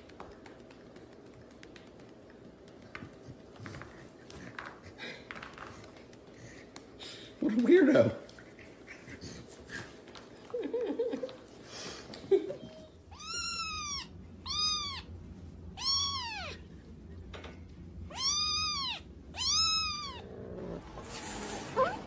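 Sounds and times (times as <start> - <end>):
kitten meowing: 13.1 - 15.1, 15.8 - 16.6, 18.1 - 20.3.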